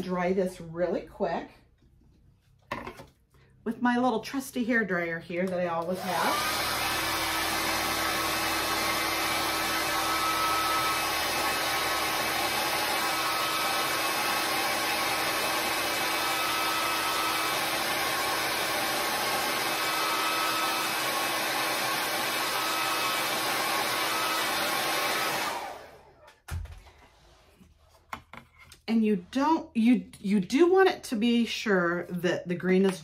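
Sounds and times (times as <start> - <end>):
hair dryer blowing air: 5.4 - 26.3.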